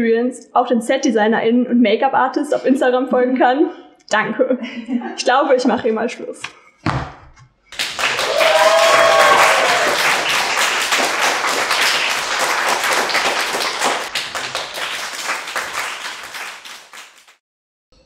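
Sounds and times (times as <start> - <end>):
person cheering: 7.8 - 16.8
audience applauding: 7.8 - 17.4.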